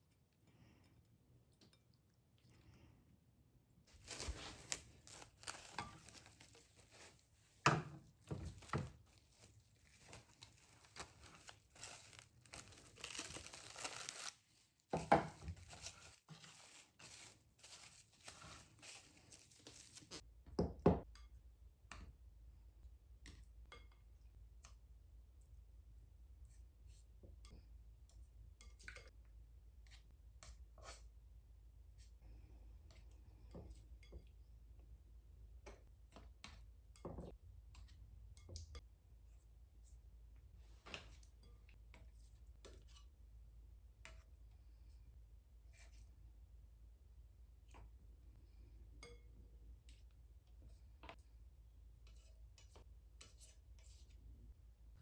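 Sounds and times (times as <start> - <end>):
cling film crinkling and tearing: 3.9 - 7.2, 9.0 - 14.8.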